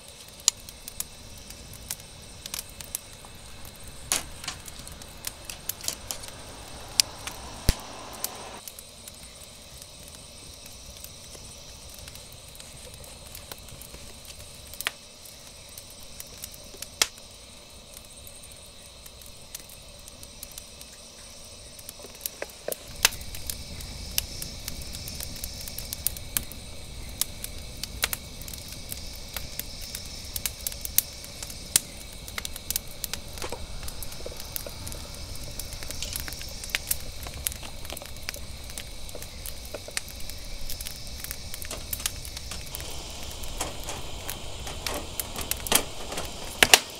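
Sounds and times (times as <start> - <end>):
crickets chirring: 0.0 - 46.9
wood fire crackling: 0.0 - 46.9
metal camp utensils clicking: 41.6 - 46.9.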